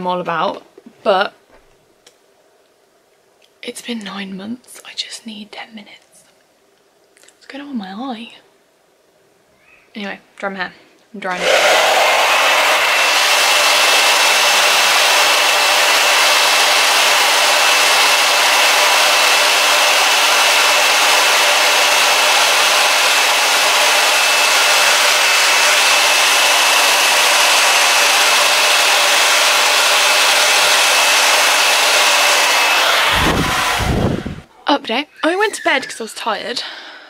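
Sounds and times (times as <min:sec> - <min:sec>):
hair dryer running: 0:11.3 - 0:34.5.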